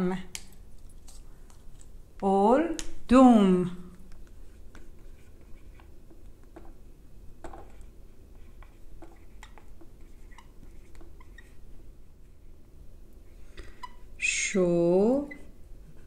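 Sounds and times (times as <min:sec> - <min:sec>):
marker squeaking on whiteboard: 0:04.2 - 0:06.8, 0:07.4 - 0:12.0, 0:13.5 - 0:14.2, 0:15.1 - 0:15.6.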